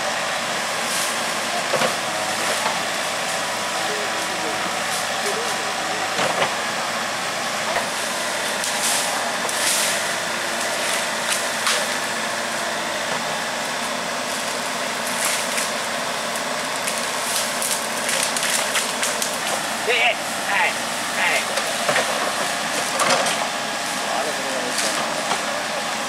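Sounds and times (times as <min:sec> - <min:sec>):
diesel engine running: 0:00.0 - 0:26.0
sharp crackles: 0:16.8 - 0:19.6.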